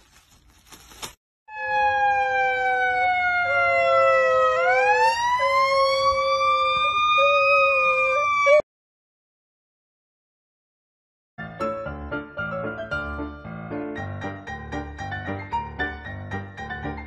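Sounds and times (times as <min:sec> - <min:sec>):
siren wailing: 0:01.5 - 0:08.6.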